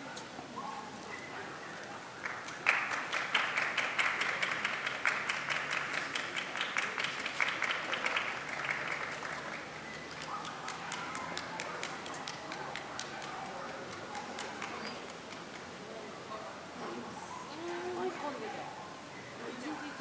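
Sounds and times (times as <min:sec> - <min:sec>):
crowd applauding: 0:02.2 - 0:15.8.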